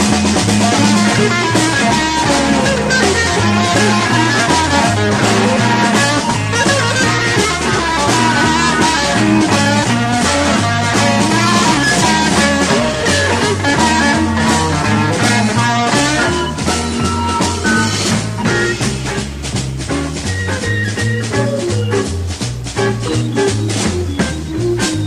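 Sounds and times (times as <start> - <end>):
bass line: 0.0 - 25.0
drums: 0.0 - 25.0
electric guitar: 0.0 - 25.0
rock band playing: 0.0 - 25.0.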